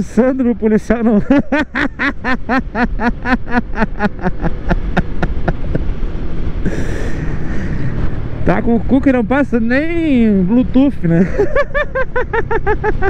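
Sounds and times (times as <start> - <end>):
riding and wind noise: 0.0 - 13.0
man laughing: 1.0 - 6.0, 6.6 - 8.0, 11.1 - 13.0.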